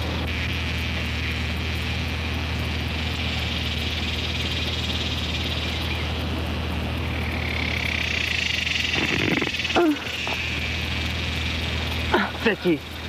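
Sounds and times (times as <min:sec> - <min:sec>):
low steady hum: 0:00.0 - 0:13.0
high-pitched night chorus trilling: 0:07.0 - 0:13.0.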